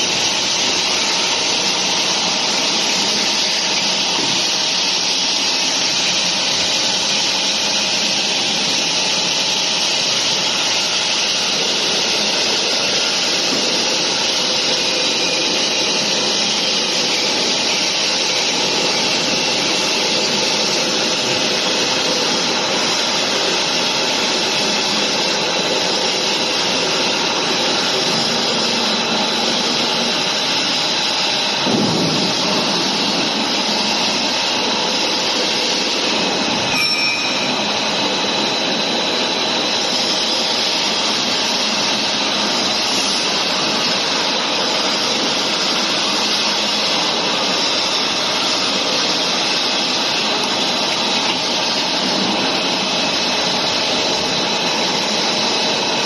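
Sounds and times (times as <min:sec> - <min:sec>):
moulding machine running: 0:00.0 - 0:56.0
faint high whine: 0:23.9 - 0:56.0.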